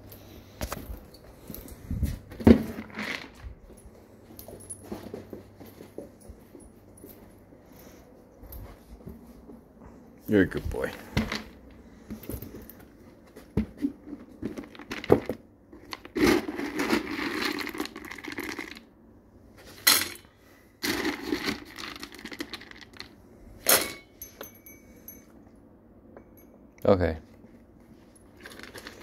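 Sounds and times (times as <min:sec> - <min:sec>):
dry kibble rattling into metal bowl: 0:14.5 - 0:18.9, 0:20.8 - 0:23.2, 0:28.2 - 0:29.0.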